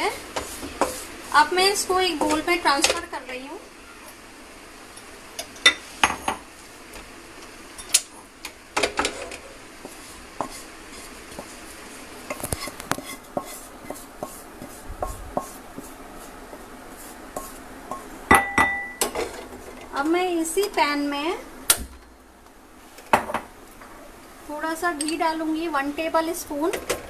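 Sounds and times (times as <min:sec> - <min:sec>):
wooden spatula scraping a pan: 0:00.0 - 0:02.8, 0:09.0 - 0:18.1.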